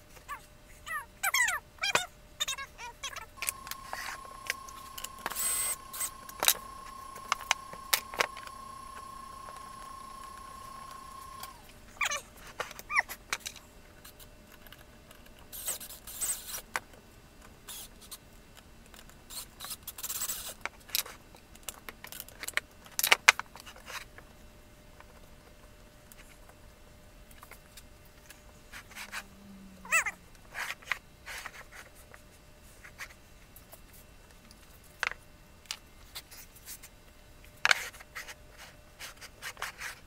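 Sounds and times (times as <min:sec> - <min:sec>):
steady high tone: 0:03.4 - 0:11.7
short bursts of noise: 0:03.4 - 0:11.8.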